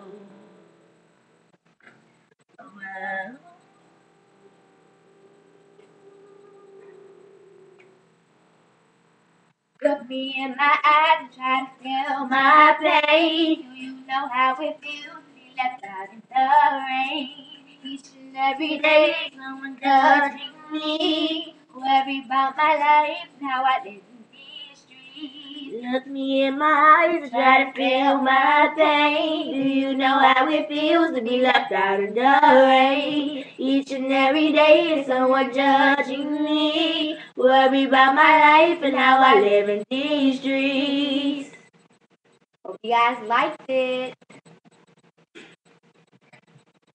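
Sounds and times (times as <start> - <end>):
girls singing together: 9.8 - 41.6.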